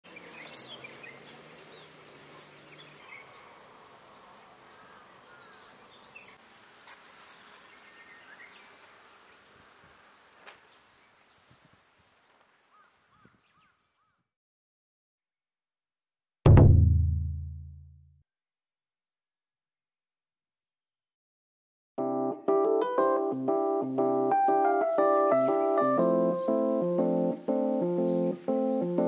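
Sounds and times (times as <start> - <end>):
bird chirps: 0.1 - 7.0.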